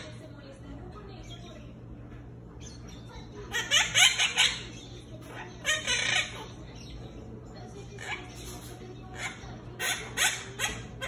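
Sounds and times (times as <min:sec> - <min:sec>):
parrot chirps and squawks: 0:02.6 - 0:07.2, 0:07.8 - 0:11.0.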